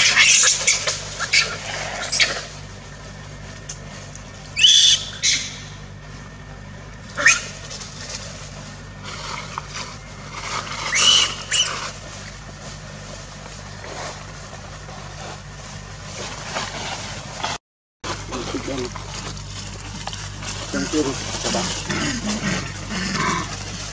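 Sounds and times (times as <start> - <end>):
macaque calls: 0.0 - 2.6, 4.6 - 5.8, 7.1 - 7.7, 10.6 - 12.0, 20.6 - 23.9
steady low hum: 0.0 - 23.9.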